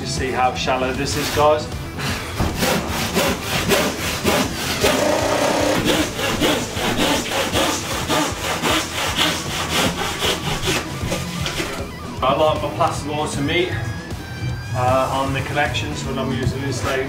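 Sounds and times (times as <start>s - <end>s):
hand saw cutting plasterboard: 1.0s - 11.9s.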